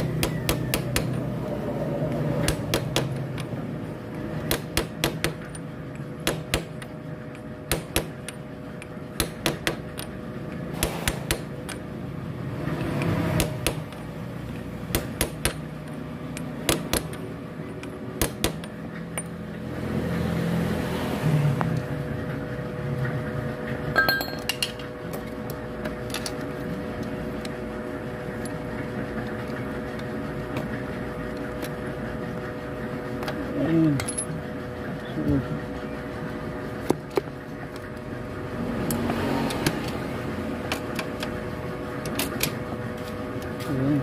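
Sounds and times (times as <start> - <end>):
hammer striking steel: 24.0 - 24.8.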